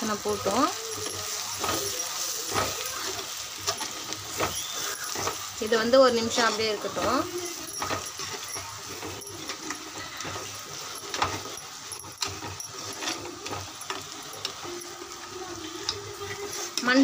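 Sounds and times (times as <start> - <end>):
spoon scraping clay pot: 0.1 - 16.9.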